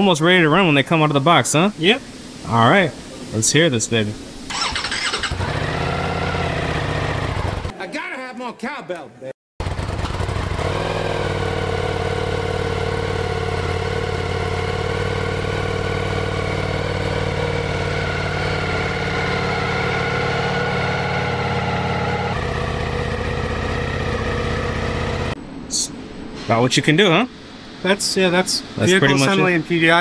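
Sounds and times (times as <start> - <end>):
motorcycle engine idling: 4.5 - 7.7, 9.6 - 25.4.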